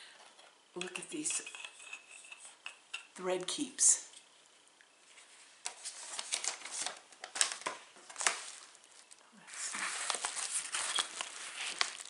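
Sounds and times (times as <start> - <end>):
bubble mailer crinkling: 5.7 - 12.0.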